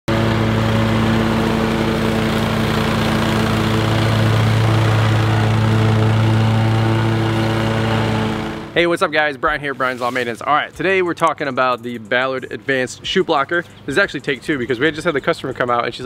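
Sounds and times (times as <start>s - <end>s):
cutting deck rushing: 0.1s - 8.8s
mower engine running: 0.1s - 8.8s.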